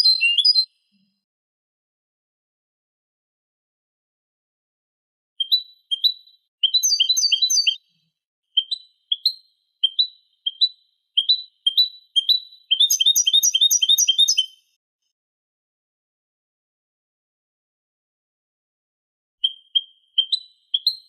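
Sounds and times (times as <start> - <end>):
goldfinch chirps and trills: 0.0 - 0.8, 5.4 - 7.9, 8.6 - 14.6, 19.4 - 21.0.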